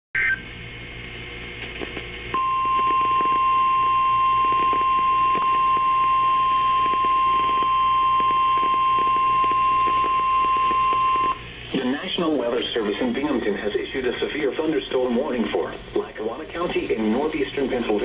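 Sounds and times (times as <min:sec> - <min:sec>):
long high alarm beep: 0:02.3 - 0:11.4
data tones: 0:02.4 - 0:11.4
radio hiss: 0:09.5 - 0:18.0.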